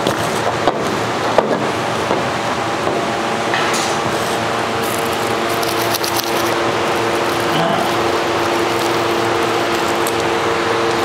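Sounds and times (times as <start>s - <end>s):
machinery hum: 0.0s - 11.0s
plastic packet crinkling: 4.8s - 10.3s.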